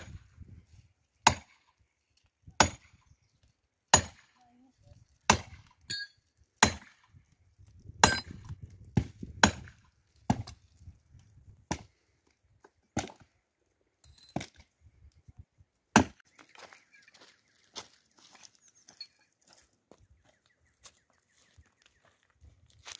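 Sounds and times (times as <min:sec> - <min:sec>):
firewood being chopped: 0:01.2 - 0:01.7, 0:02.5 - 0:03.0, 0:03.9 - 0:04.3, 0:05.2 - 0:06.0, 0:06.6 - 0:13.3, 0:15.9 - 0:16.3.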